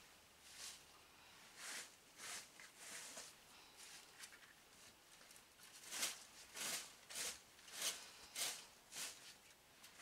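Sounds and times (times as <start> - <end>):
dry leaves rustling: 5.6 - 9.4.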